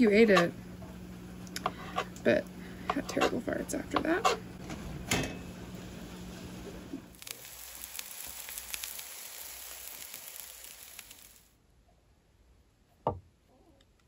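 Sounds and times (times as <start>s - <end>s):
food sizzling in a frying pan: 4.9s - 11.6s.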